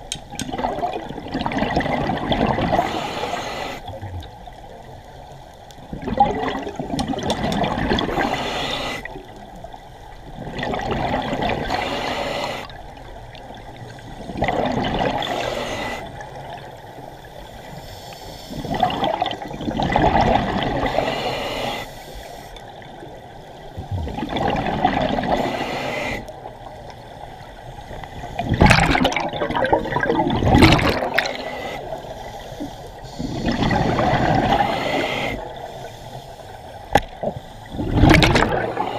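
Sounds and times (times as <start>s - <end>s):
exhaled breath bubbling underwater: 0.4s - 4.6s, 5.9s - 9.3s, 10.4s - 16.7s, 17.7s - 22.6s, 23.7s - 26.4s, 28.2s - 36.2s, 37.0s - 38.9s
quiet inhalations: 2.7s - 5.1s, 8.0s - 10.2s, 11.6s - 14.4s, 15.1s - 19.0s, 20.8s - 23.8s, 25.2s - 28.6s, 30.9s - 37.9s, 38.6s - 38.9s.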